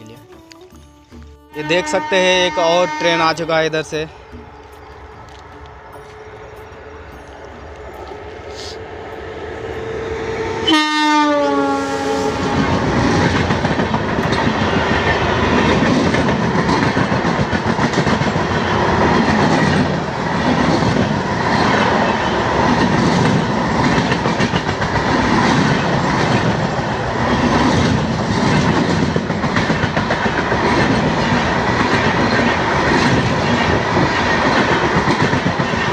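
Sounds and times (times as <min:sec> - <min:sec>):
train horn: 0:01.5 - 0:03.5, 0:09.6 - 0:13.1
train wheels clacking on rails: 0:12.3 - 0:35.9.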